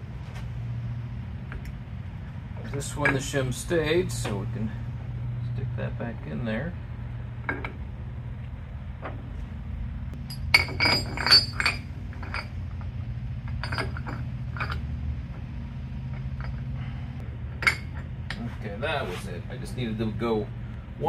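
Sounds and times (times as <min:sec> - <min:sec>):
low hum: 0:00.0 - 0:21.0
metal gears clinking: 0:10.2 - 0:14.9.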